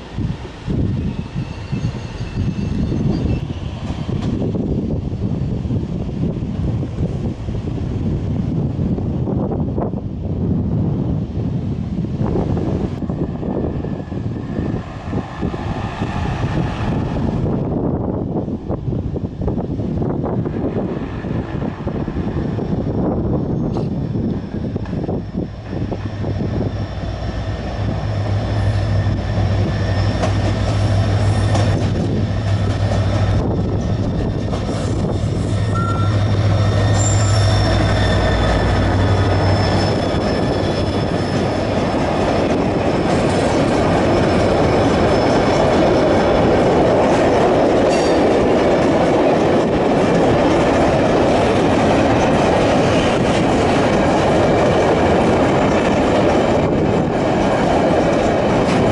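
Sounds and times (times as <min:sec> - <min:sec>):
train wheels rumbling: 0:00.0 - 0:58.9
wheel squeals: 0:01.0 - 0:03.8, 0:28.6 - 0:31.8, 0:35.4 - 0:41.7
locomotive engine drone: 0:11.5 - 0:58.9.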